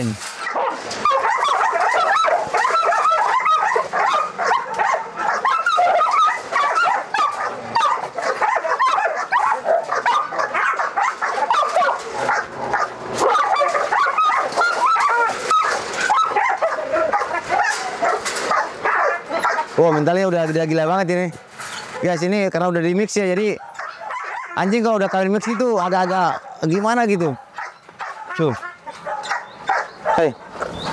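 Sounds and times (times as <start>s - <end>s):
dogs barking: 0.3s - 20.8s, 21.7s - 22.5s, 23.1s - 30.9s.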